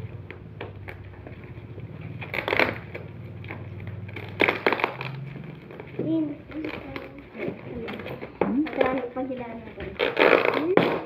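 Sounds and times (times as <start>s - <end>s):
plastic wrapping crinkling: 0.0s - 11.0s
plastic wrapping ripping: 2.1s - 8.0s, 8.7s - 11.0s.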